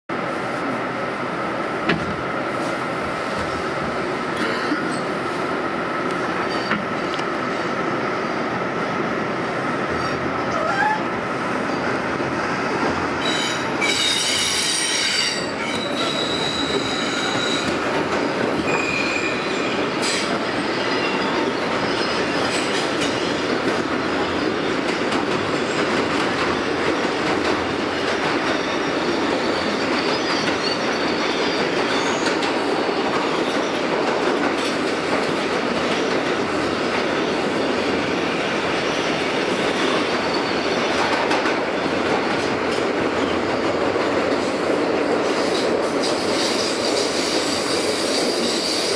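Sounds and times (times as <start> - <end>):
train wheels rumbling on rail: 0.1 - 48.9
wheels squealing on track: 13.2 - 17.8, 18.7 - 20.2.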